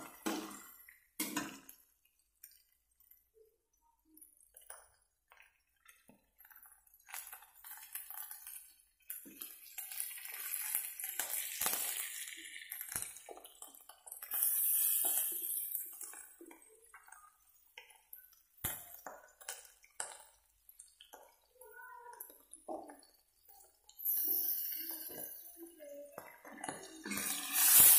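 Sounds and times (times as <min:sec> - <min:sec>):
food sizzling in oil: 0:06.4 - 0:27.9.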